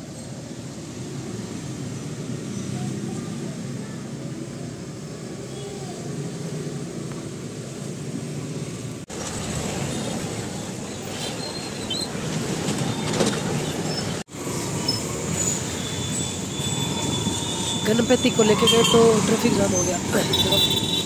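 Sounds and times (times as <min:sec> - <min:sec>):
passing vehicles: 0:00.0 - 0:21.0
short high-pitched squeals: 0:13.8 - 0:21.0.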